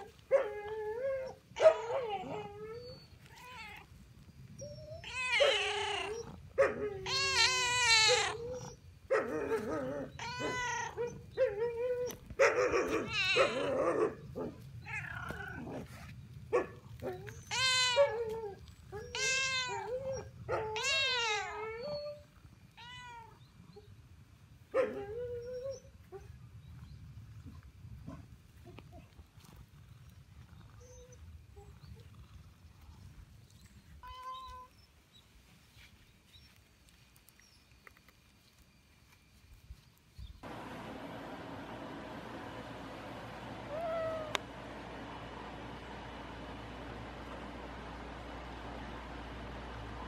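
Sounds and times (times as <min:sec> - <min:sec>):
cat meowing: 0:05.0 - 0:06.4, 0:07.0 - 0:08.6, 0:10.2 - 0:11.0, 0:13.1 - 0:13.8, 0:17.5 - 0:18.4, 0:19.0 - 0:20.0, 0:20.7 - 0:21.9.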